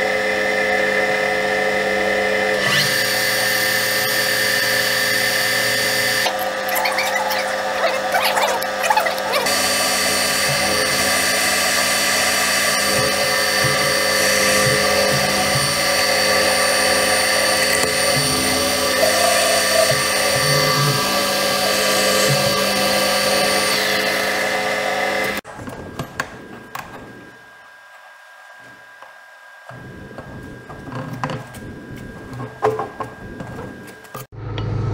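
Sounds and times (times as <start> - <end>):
metal lathe whining: 0.0 - 25.4, 28.6 - 34.3.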